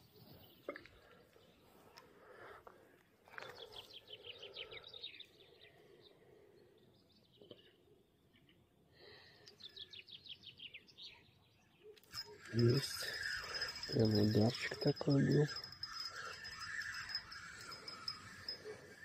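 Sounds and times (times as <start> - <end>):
faint songbird song: 0.0 - 19.0.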